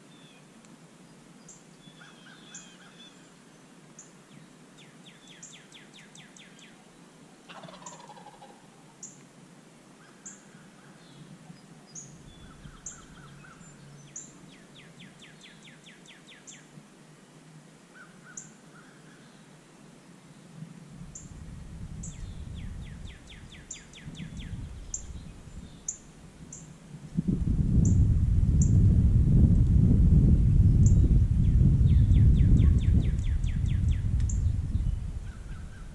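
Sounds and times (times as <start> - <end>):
birds chirping and trilling: 10.0 - 16.7, 22.0 - 26.7, 30.8 - 35.9
loud low rushing noise: 27.1 - 35.3.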